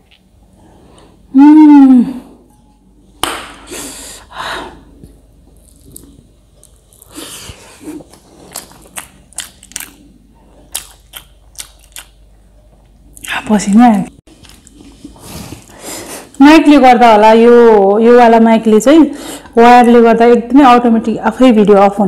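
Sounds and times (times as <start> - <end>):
close-miked chewing: 5.5 - 13.4, 14.3 - 16.4.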